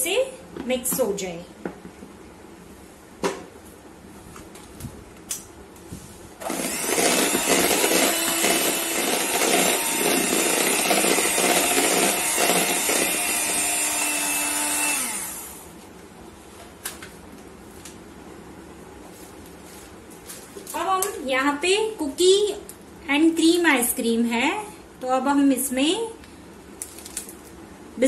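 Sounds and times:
electric hand mixer whirring: 6.4s - 15.7s.

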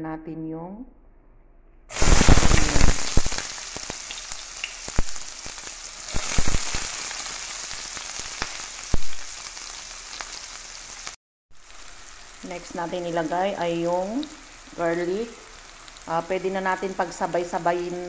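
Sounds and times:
oil popping and crackling: 1.9s - 12.7s
onion sizzling in hot oil: 1.9s - 18.0s.

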